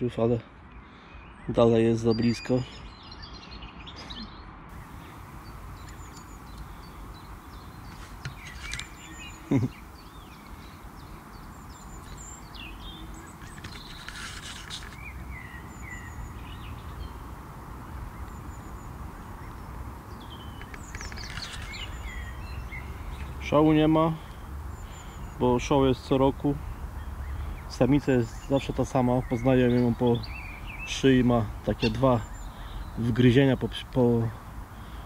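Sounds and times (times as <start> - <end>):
bird chirps and peeps: 2.1 - 33.6
low bird call: 3.9 - 17.3
outdoor background hum: 3.9 - 35.0.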